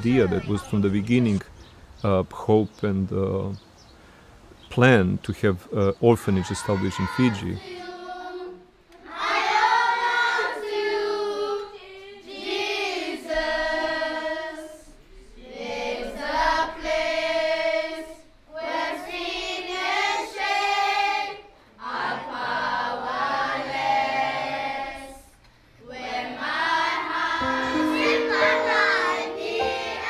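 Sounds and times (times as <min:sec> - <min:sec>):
group singing unaccompanied: 0:06.6 - 0:30.0.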